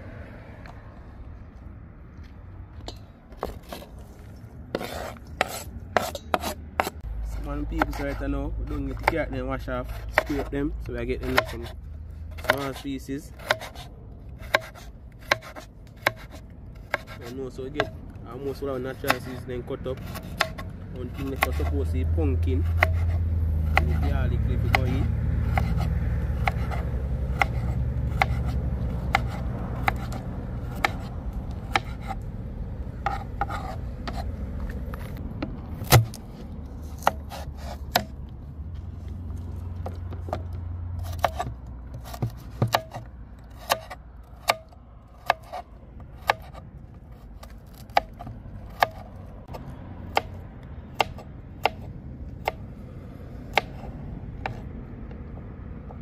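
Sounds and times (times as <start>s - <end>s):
knife chopping on plastic board: 10.0s - 10.5s, 11.2s - 11.7s, 12.4s - 12.8s, 14.4s - 18.0s, 22.8s - 32.2s, 41.0s - 43.0s.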